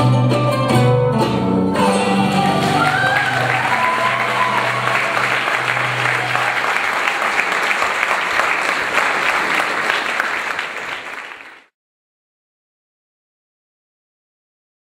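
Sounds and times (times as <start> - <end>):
audience applauding: 1.9 - 11.7.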